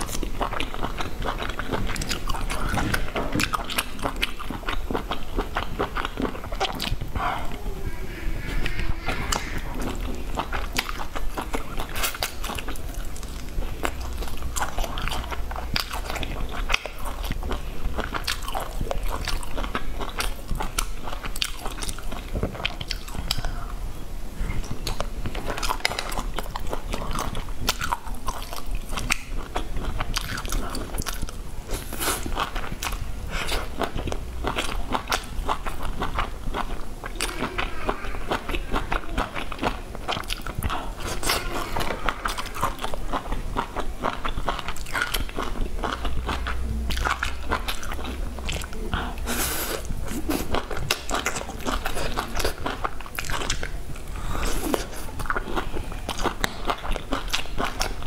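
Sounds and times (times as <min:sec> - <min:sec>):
person chewing food: 0:00.0 - 0:23.6, 0:24.4 - 0:58.0
mouth clicks and crunches: 0:24.6 - 0:58.0.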